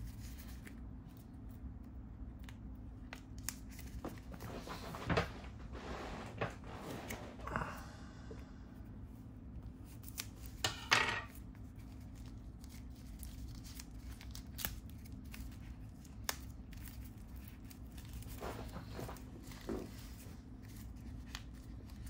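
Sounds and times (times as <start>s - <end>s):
steady low hum: 0.0s - 22.0s
paper crinkling and tearing: 11.6s - 22.0s.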